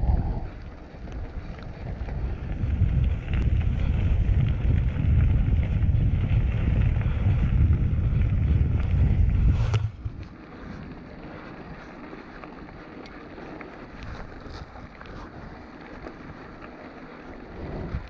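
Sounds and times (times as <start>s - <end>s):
tyres rolling on gravel: 0.0s - 18.0s
wind buffeting microphone: 0.0s - 18.0s.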